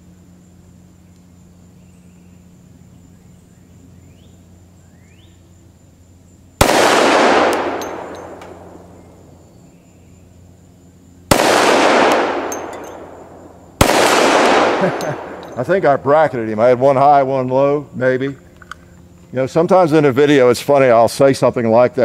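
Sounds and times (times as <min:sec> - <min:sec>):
pistol shots with echo: 0:06.6 - 0:09.3, 0:11.3 - 0:15.7.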